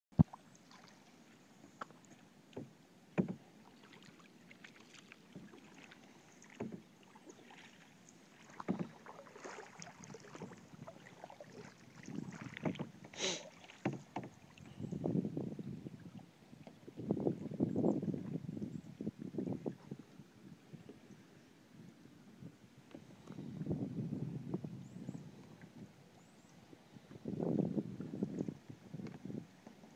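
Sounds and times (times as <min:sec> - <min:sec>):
paddle splashing in water: 0:00.2 - 0:15.2
knocks against canoe: 0:02.5 - 0:03.5, 0:06.5 - 0:06.8, 0:08.4 - 0:10.6, 0:12.3 - 0:14.5.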